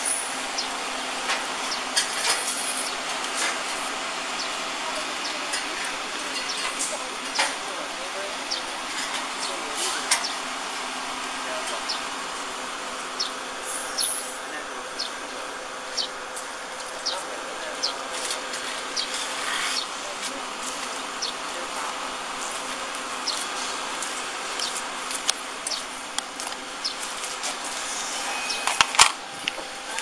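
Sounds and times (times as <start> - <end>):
plasma cutter buzzing hiss: 27.5 - 30.0.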